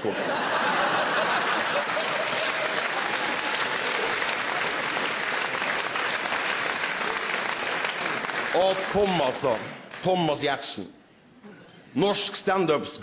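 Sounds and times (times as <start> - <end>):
audience applauding: 0.4 - 10.4.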